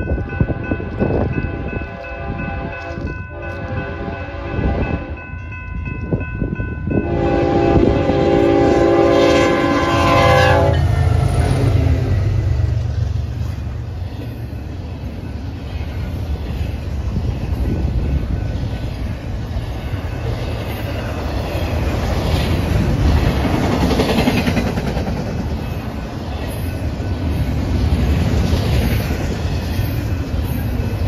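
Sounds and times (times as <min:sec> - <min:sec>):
crossing warning bells ringing: 0:00.0 - 0:31.0
low rumble of locomotives: 0:00.0 - 0:31.0
locomotive air horn: 0:01.5 - 0:05.2, 0:07.0 - 0:12.1
clatter of rail cars rolling: 0:13.0 - 0:31.0.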